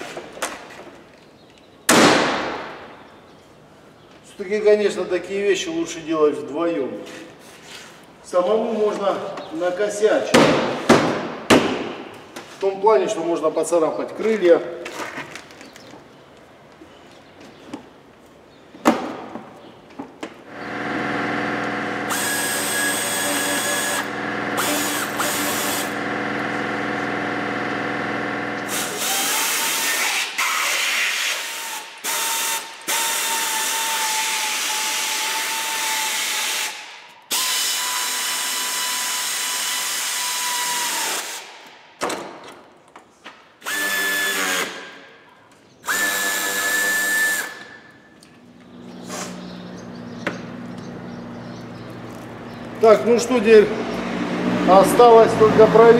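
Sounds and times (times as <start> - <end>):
electric drill whining: 20.5 - 41.5, 43.6 - 44.8, 45.8 - 47.7.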